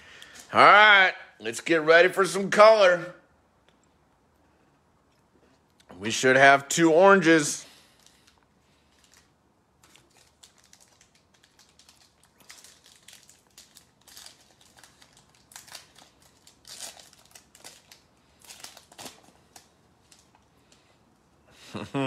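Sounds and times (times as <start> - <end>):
foil wrapper crinkling: 7.8 - 20.8.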